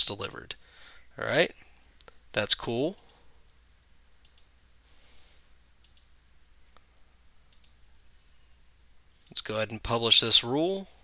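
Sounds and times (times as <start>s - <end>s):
low steady hum: 0.0s - 11.0s
computer mouse clicks: 4.2s - 4.5s, 5.8s - 6.1s, 7.5s - 7.8s.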